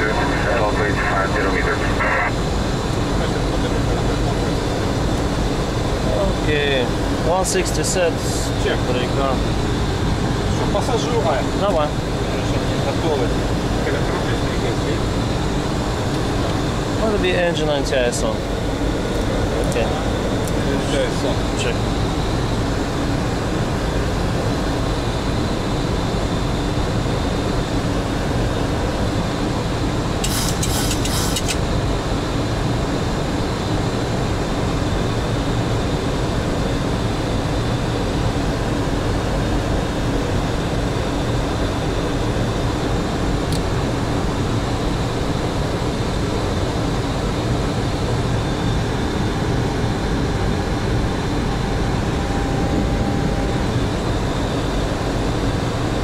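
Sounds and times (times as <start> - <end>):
low steady hum: 0.0 - 6.8, 38.2 - 56.0
airflow and air-conditioning rush: 0.0 - 33.0.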